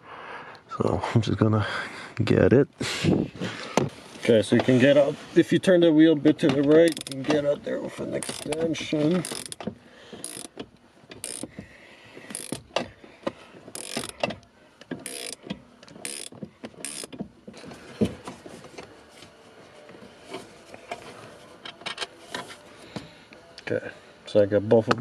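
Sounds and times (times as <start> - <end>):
ratchet wrench clicking: 6.8 - 7.2, 8.2 - 9.6, 10.2 - 10.6, 11.2 - 11.5, 12.3 - 12.8, 13.7 - 14.3, 15.0 - 17.2.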